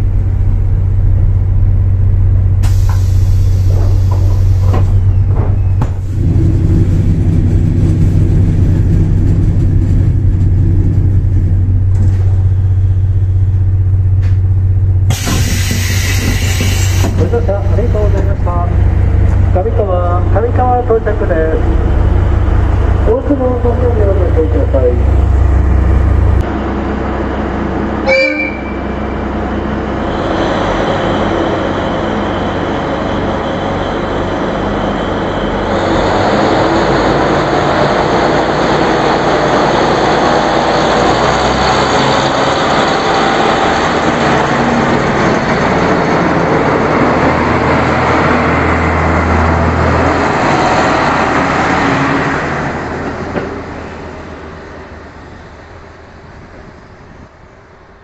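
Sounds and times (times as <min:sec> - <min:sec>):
diesel train engines running: 0:00.0 - 0:58.0
train horn toot: 0:28.0 - 0:29.0.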